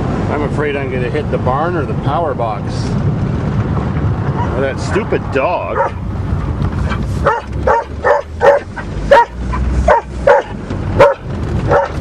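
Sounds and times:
car engine and road noise: 0.0s - 12.0s
dog barking: 4.4s - 4.6s, 5.7s - 6.0s, 7.2s - 12.0s.

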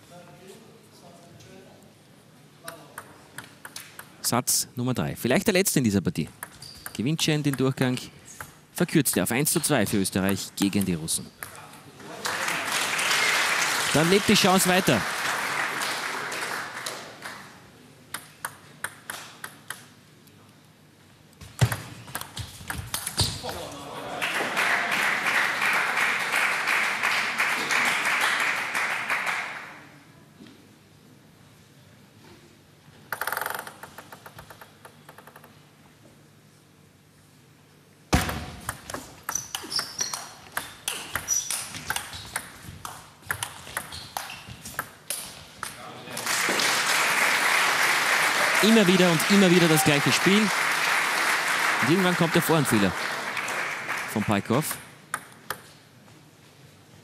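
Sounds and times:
table tennis rally clicks: 2.6s - 4.2s, 6.3s - 7.8s, 18.1s - 20.0s, 21.5s - 23.3s, 33.1s - 35.6s, 38.2s - 45.8s, 54.7s - 55.8s
table tennis ball bouncing: 6.3s - 7.7s, 18.1s - 20.0s, 21.4s - 23.4s, 38.1s - 45.8s, 54.8s - 55.7s
shoes squeaking on floor: 6.5s - 7.0s, 39.3s - 42.7s, 43.6s - 44.8s
applause: 12.1s - 17.6s, 24.1s - 29.8s, 46.1s - 54.8s.

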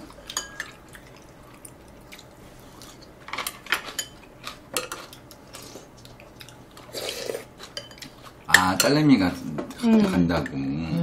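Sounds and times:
chopsticks clinking on ceramic bowls: 7.6s - 9.0s.

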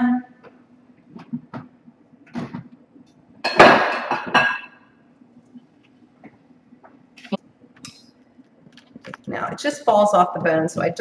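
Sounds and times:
cookware clattering on counter: 3.4s - 4.8s.

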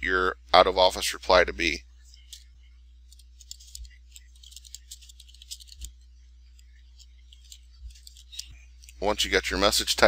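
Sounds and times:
faint low hum: 0.0s - 10.0s
computer keyboard typing: 3.2s - 6.0s.

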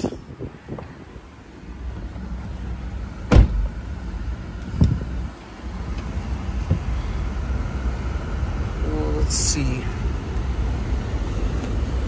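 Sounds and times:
car engine idling: 0.0s - 12.0s
sharp thump: 3.3s - 3.7s.

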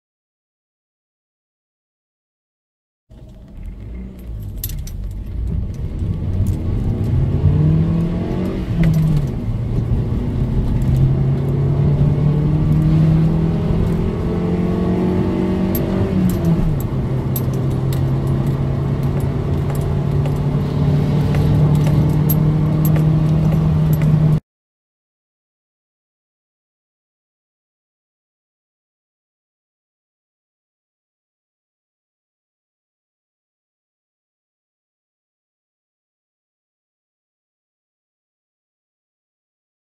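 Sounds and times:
car engine accelerating: 3.1s - 24.4s.

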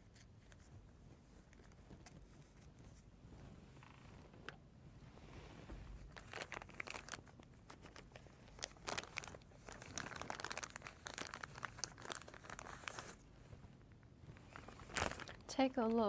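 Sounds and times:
plastic bag crinkling: 6.0s - 13.3s, 14.3s - 16.0s.

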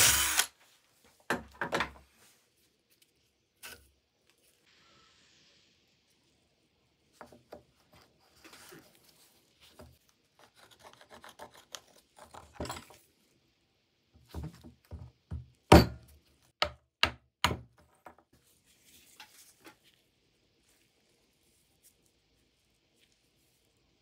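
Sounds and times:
faint rubbing and handling: 7.0s - 10.6s, 18.3s - 24.0s.

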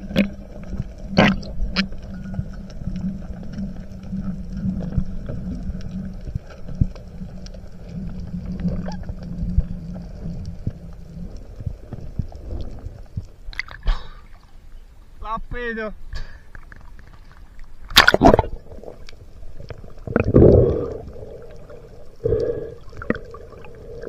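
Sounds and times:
water splashing: 0.0s - 2.0s, 11.2s - 14.6s, 16.6s - 24.0s
low underwater hum: 0.0s - 15.2s, 16.0s - 24.0s.

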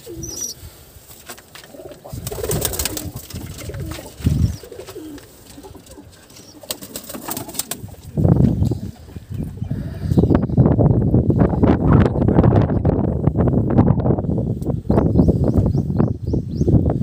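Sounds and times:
pigeons cooing: 0.0s - 0.7s, 1.6s - 10.6s.

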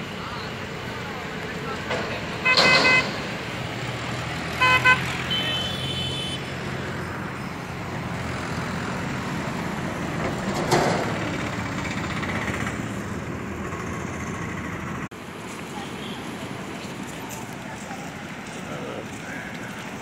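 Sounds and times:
steady traffic noise: 0.0s - 20.0s
vehicle passing: 0.0s - 20.0s
vehicle horn honks: 2.4s - 3.2s, 4.6s - 6.5s.

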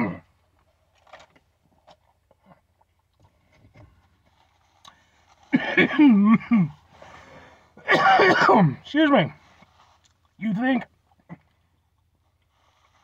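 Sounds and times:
man coughing and sputtering: 5.5s - 6.8s, 7.8s - 9.0s.

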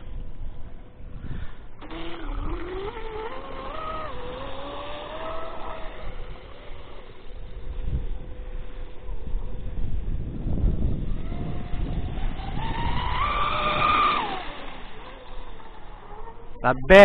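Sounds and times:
electric motor whining: 1.7s - 16.9s.

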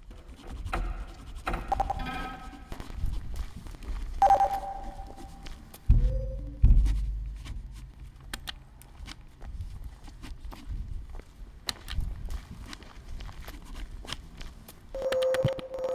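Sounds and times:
short ringing tone: 4.2s - 5.2s, 6.0s - 6.6s
heavy low thuds: 5.9s - 8.0s.

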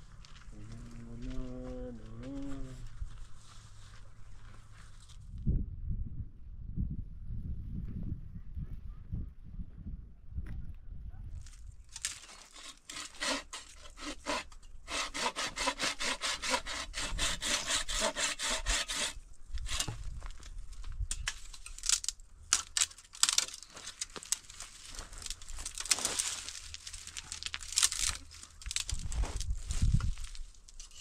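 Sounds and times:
hand saw cutting branch: 12.1s - 20.0s.

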